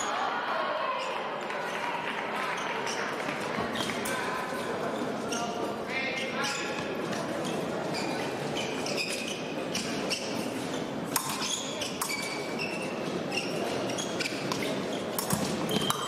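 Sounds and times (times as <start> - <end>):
hubbub in echoing hall: 0.0 - 16.0
footwork squeaking and tapping: 3.7 - 16.0.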